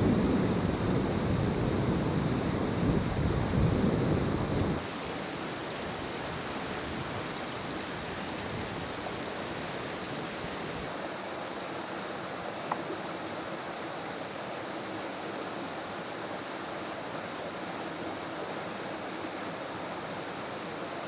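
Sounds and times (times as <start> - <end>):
stream running over rocks: 4.8 - 21.0.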